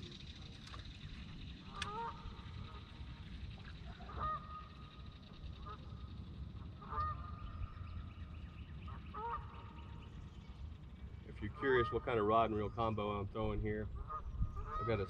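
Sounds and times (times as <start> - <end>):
goose honking: 9.2 - 9.5.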